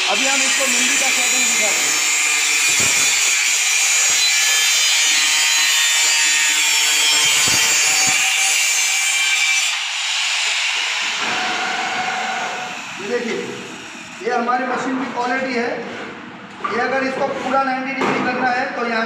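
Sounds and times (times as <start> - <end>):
angle grinder cutting steel: 0.0 - 14.2
grinder whirring: 0.0 - 14.2.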